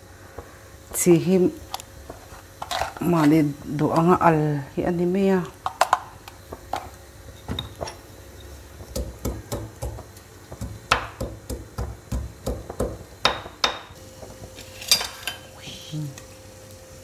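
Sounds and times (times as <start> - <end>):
pestle pounding in stone mortar: 8.9 - 13.9.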